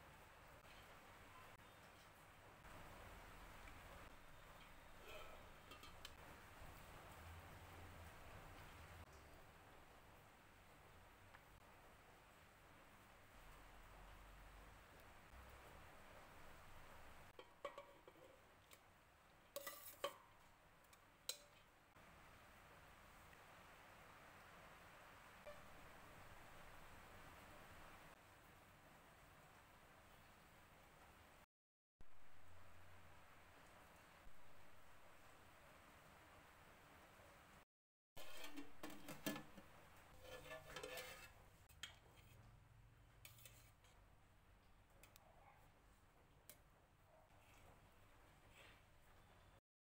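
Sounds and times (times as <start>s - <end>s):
metal spoon clinking on pot: 4.6s - 6.2s, 17.4s - 18.8s, 19.6s - 20.2s, 40.2s - 42.0s
metal lid clinking on pot: 17.4s - 18.4s, 19.6s - 20.2s, 38.2s - 41.4s
metal spoon scraping in pot: 17.4s - 18.8s, 19.5s - 20.3s, 38.2s - 42.4s, 43.2s - 44.0s.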